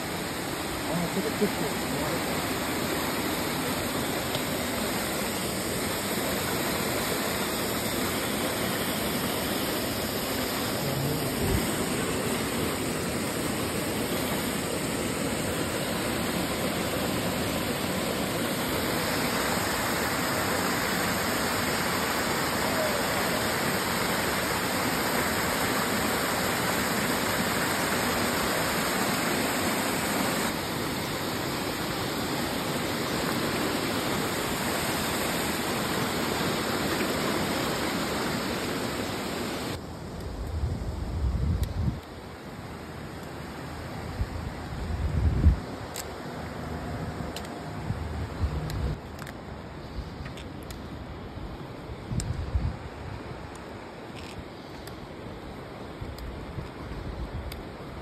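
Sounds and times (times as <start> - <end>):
stream rushing over rocks: 0.0 - 40.2.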